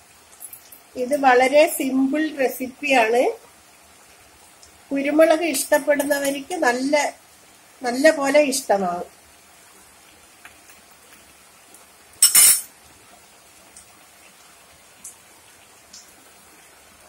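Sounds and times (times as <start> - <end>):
curry boiling with faint pops: 0.0 - 17.0
metal ladle clattering on saucer: 12.2 - 12.7.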